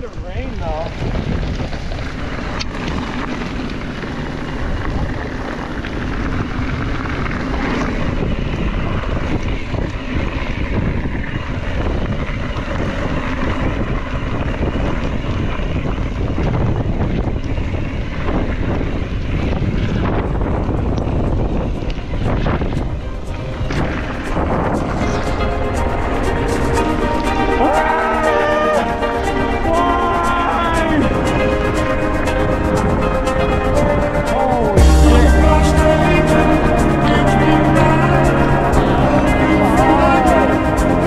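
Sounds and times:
bike knocking and rattling: 0.0 - 25.4
continuous low rumble: 0.0 - 27.9, 28.5 - 41.0
wind buffeting microphone: 0.0 - 41.0.

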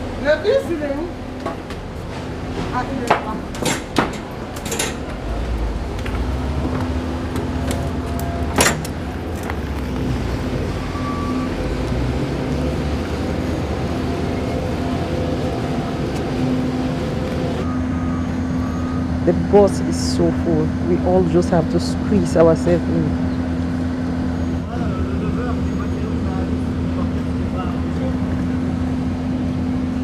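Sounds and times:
mechanical hum of ground equipment: 0.0 - 30.0
footsteps on metal stairs: 1.4 - 10.0.

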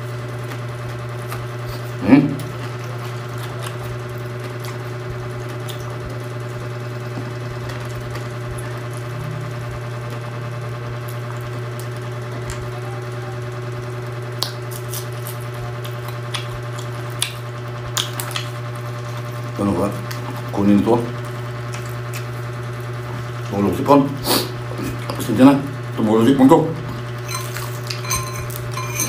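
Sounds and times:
low electrical hum: 0.0 - 29.0
crisp clicks of food chewed: 2.4 - 6.1, 11.0 - 12.7, 14.3 - 19.2, 21.6 - 22.4.

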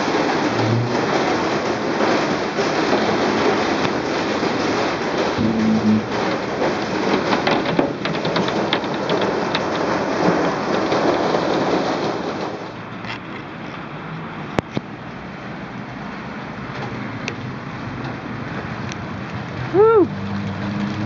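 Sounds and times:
hail striking hard surfaces: 0.0 - 13.0.

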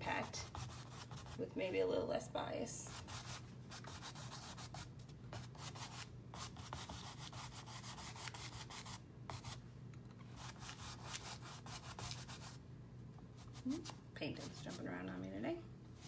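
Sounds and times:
paintbrush scrubbing canvas: 0.0 - 1.4, 2.9 - 9.6, 13.4 - 15.0
low steady hum: 0.0 - 16.0.

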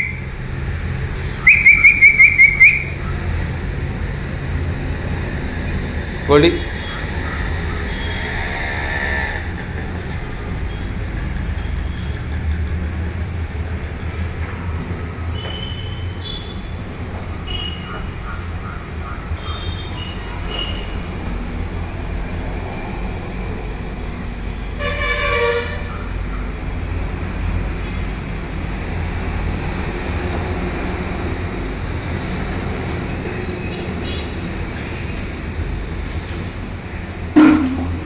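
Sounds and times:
road traffic rumble: 0.0 - 38.0
vehicle horn: 24.8 - 25.9, 37.4 - 38.0
short loud sound: 37.4 - 38.0.

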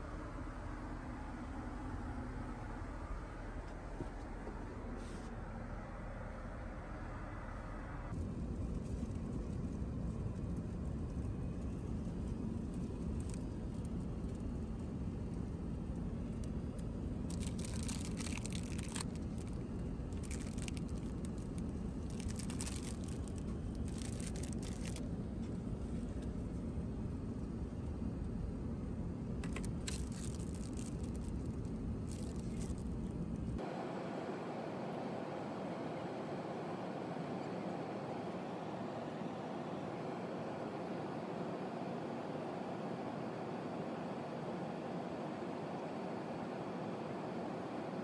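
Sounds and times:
airplane cabin low rumble: 0.0 - 48.0
plastic food wrapping crinkling: 17.3 - 25.0, 29.4 - 33.0.

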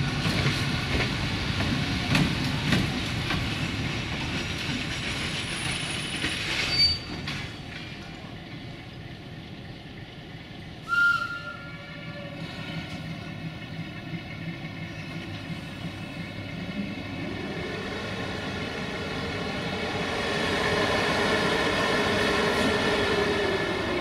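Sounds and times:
diesel locomotive engine throttling up: 7.2 - 24.0
locomotive horn toot: 10.8 - 12.4.

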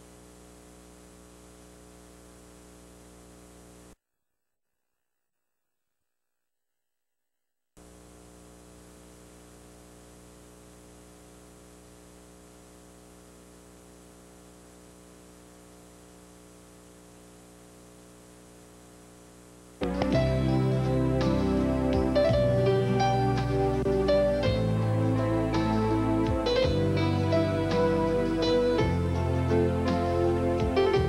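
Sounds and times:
steady electrical hum: 0.0 - 4.0, 7.8 - 31.0
faint hiss: 7.8 - 31.0.

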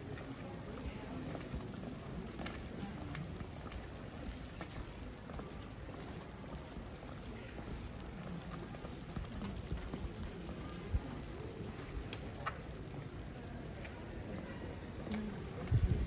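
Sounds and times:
steady rain: 0.0 - 16.0
light ticks: 12.0 - 12.8.

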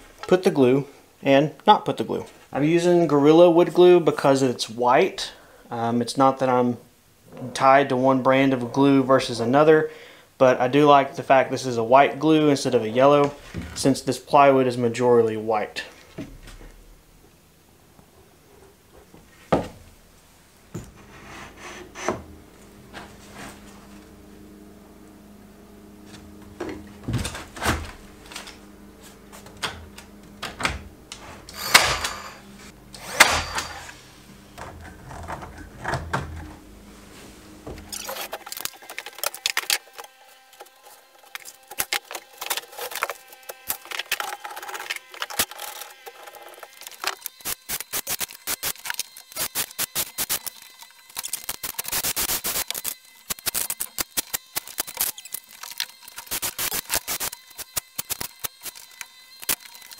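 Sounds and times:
steady low hum: 12.7 - 38.7.

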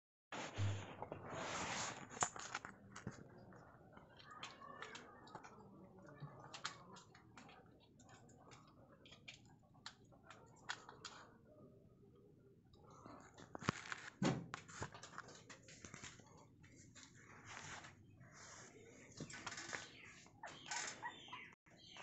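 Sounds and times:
faint irregular ticks and clicks: 2.2 - 17.2.

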